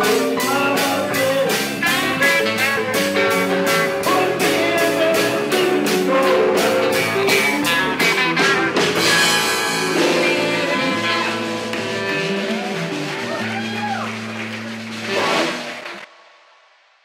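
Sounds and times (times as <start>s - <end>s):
held chords: 0.0s - 15.0s
electric guitar: 0.0s - 16.0s
steady drumbeat: 0.0s - 16.1s.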